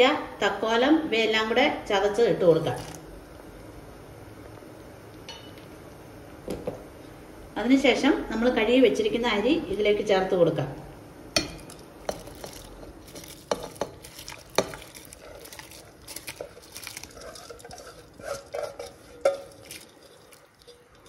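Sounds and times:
rice stirred in boiling water: 11.4 - 21.0.

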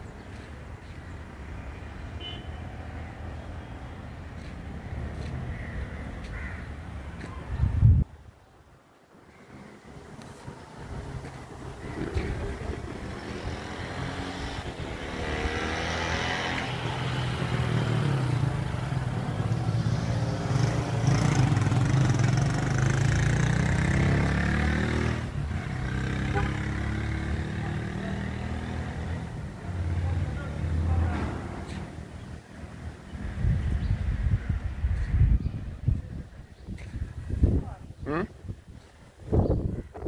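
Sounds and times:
motor vehicle engine running: 10.2 - 32.2.

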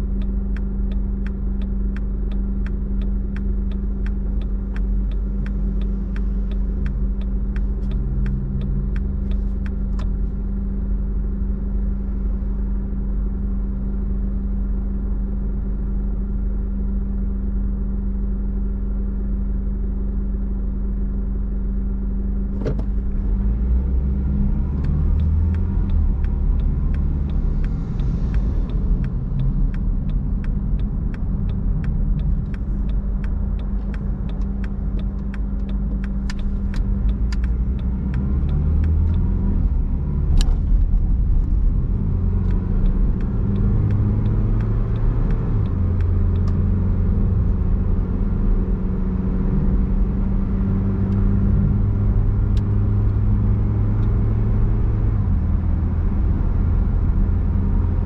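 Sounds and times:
car engine and road rumble: 0.0 - 58.0
regular clicking: 0.1 - 10.4, 24.5 - 47.3.

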